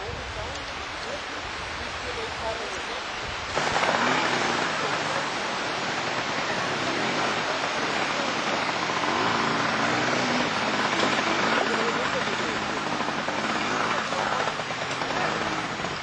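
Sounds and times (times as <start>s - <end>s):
running water rushing: 0.0s - 16.0s
motorcycle engine revving: 3.4s - 16.0s.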